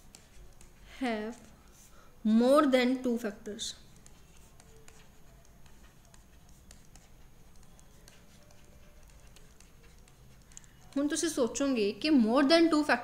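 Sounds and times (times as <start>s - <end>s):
stylus tapping on tablet screen: 3.5s - 11.4s.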